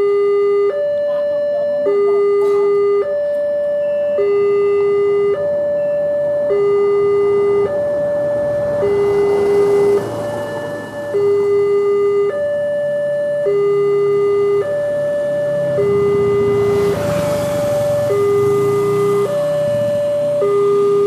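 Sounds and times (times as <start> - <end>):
level-crossing two-tone alarm: 0.0 - 21.0.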